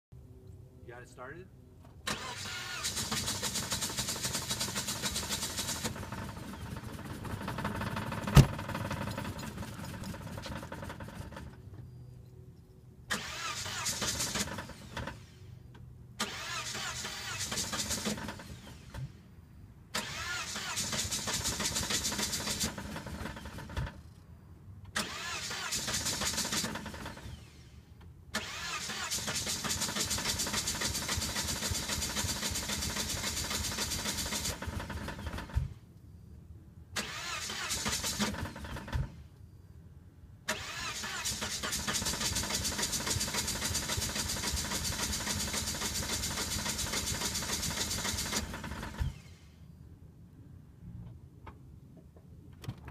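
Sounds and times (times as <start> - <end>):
car engine cranking without starting: 2.1 - 11.6, 13.1 - 15.4, 16.2 - 19.1, 19.9 - 24.2, 24.9 - 27.7, 28.3 - 35.7, 37.0 - 39.2, 40.5 - 49.4.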